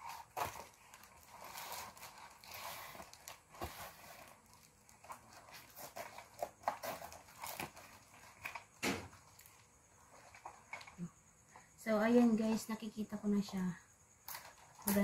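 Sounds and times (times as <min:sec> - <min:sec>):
packing tape tearing: 0:00.0 - 0:09.6
plastic wrap crinkling: 0:00.0 - 0:11.1.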